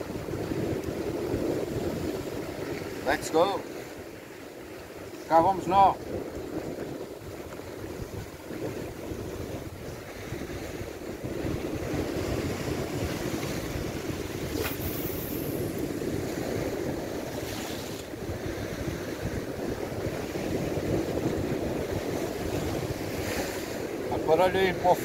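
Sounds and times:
surf washing against rocks: 0.0s - 25.0s
wind buffeting microphone: 0.0s - 25.0s
short high hiss: 14.5s - 15.7s.

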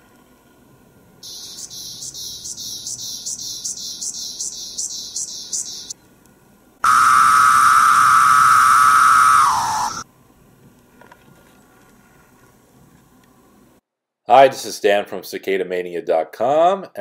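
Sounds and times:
cicada buzzing pulses: 1.2s - 5.9s, 6.8s - 10.0s
cicada wee-o call: 1.2s - 6.0s, 6.8s - 10.0s.

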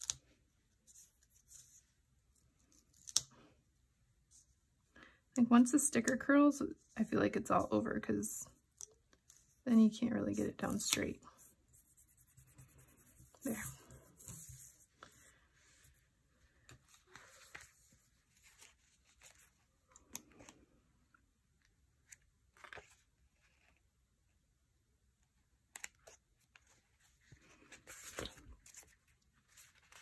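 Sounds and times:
paper and stickers rustling: 25.8s - 30.0s.

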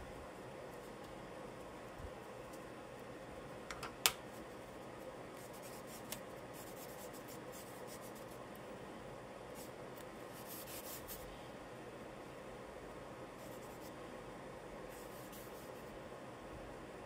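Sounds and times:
charcoal scratching on paper: 5.4s - 8.4s, 10.3s - 11.3s, 13.4s - 13.9s, 14.9s - 15.9s.

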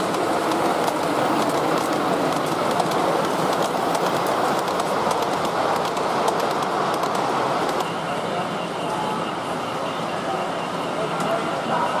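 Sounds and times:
model train wheels rumbling: 0.0s - 8.0s.

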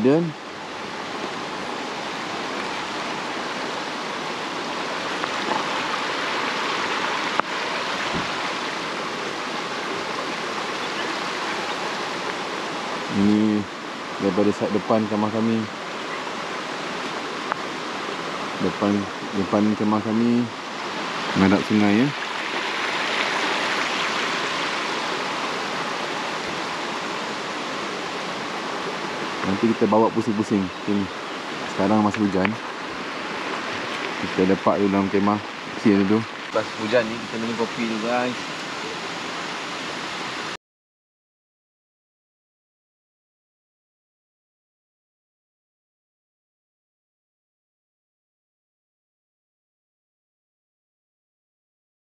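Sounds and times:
rain falling: 0.0s - 40.6s
river flowing: 0.0s - 40.6s.

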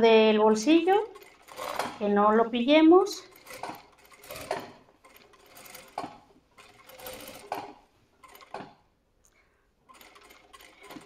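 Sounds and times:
sewing machine stitching: 0.5s - 2.5s, 3.1s - 8.9s, 9.9s - 11.0s.

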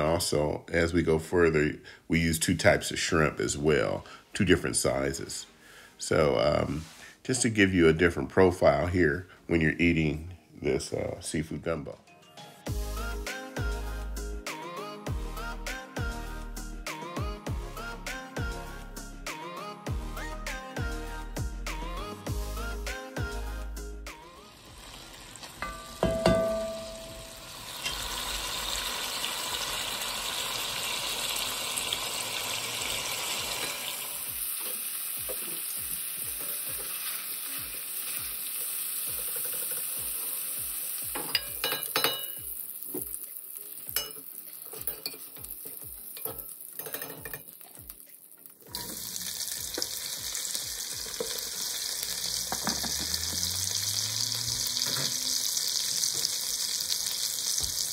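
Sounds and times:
sausage sizzling in a pot: 24.1s - 57.9s
okra frying with hissy sizzle: 24.4s - 57.9s.

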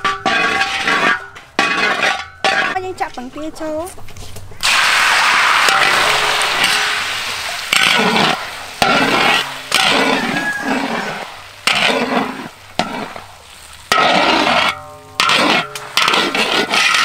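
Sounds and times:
metal spatula scraping pan: 0.0s - 2.8s, 5.7s - 13.3s, 13.9s - 17.0s
eggs sizzling in hot oil: 4.6s - 17.0s.

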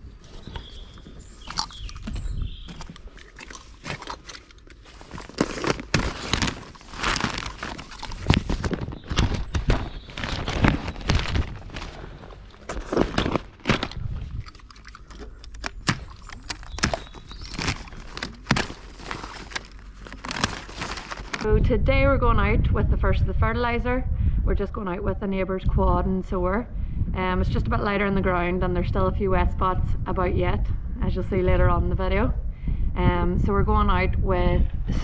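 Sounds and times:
irregular thumps: 0.0s - 21.5s
plastic wrap rustling: 0.2s - 21.5s
knife cutting plastic film: 3.8s - 9.7s, 15.4s - 21.5s.

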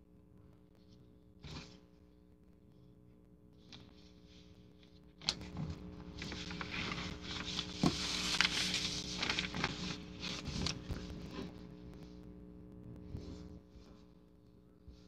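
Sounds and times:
fabric and paper rustling: 3.6s - 11.6s.

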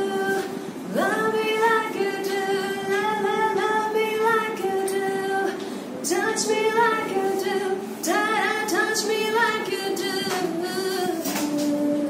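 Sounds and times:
woman singing: 0.0s - 12.0s.

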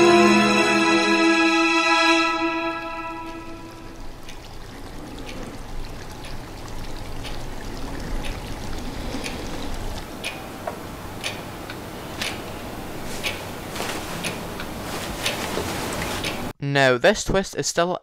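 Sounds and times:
background hiss: 0.0s - 6.6s.

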